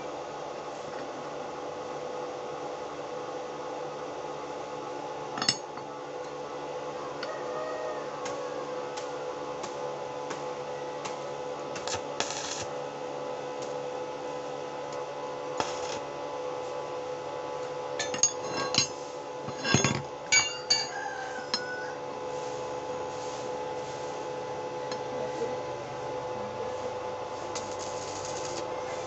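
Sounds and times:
steady electrical hum: 0:08.0 - 0:29.0
buzzy crackles: 0:11.9 - 0:12.7, 0:27.5 - 0:29.0
steel pieces clanking: 0:18.0 - 0:20.9.

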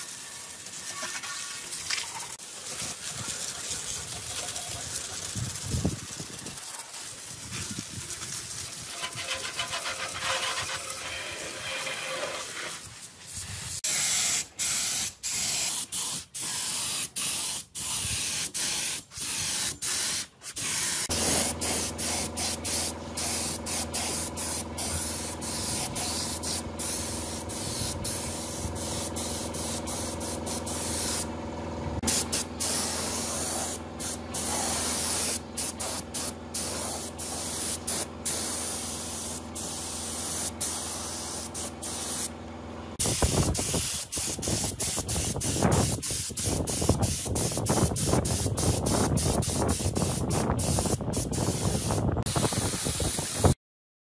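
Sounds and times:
water jet hissing and splashing: 0:00.0 - 0:16.0, 0:20.7 - 0:31.3, 0:32.0 - 0:42.2
paint spray gun hissing: 0:04.8 - 0:42.4, 0:43.0 - 0:53.6
steady machine hum: 0:21.1 - 0:34.4.

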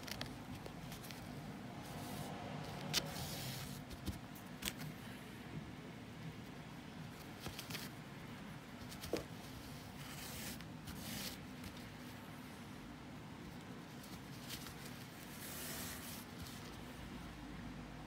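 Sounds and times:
low steady hum: 0:00.0 - 0:18.0
yarn rustling through weave: 0:13.4 - 0:17.0.

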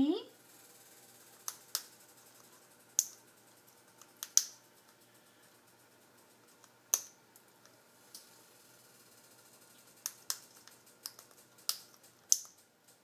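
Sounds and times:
parrot beak cracking pasta: 0:04.0 - 0:05.0, 0:09.8 - 0:12.6.

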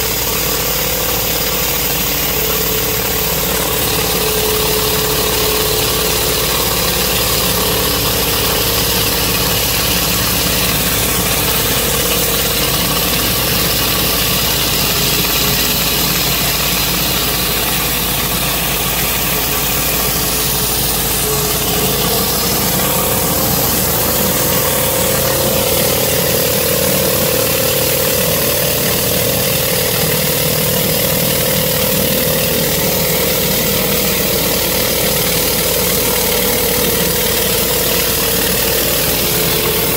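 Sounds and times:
pressure washer engine drone: 0:00.0 - 0:39.9
water jets hissing: 0:01.1 - 0:39.9.

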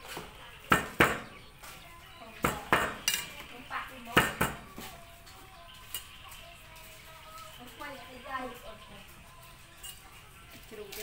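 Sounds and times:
knife chopping meat on board: 0:00.7 - 0:01.4, 0:02.4 - 0:03.0, 0:04.1 - 0:04.7.

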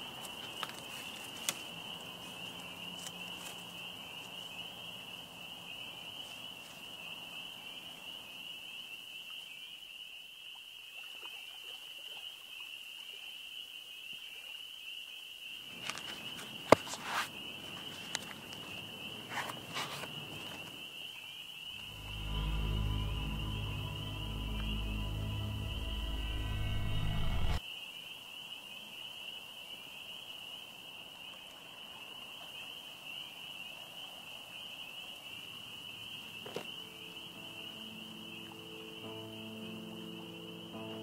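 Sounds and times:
insects chirring: 0:00.0 - 0:10.8, 0:14.6 - 0:41.0.

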